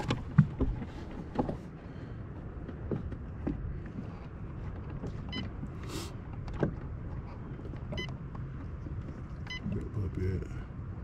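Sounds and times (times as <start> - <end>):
short electronic beeps: 9.4 - 9.8.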